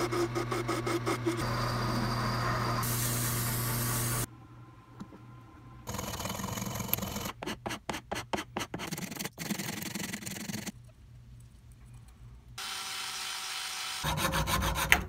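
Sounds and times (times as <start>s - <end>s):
steady drilling: 0.0s - 4.3s, 12.6s - 14.2s
file scraping wood: 14.0s - 15.0s.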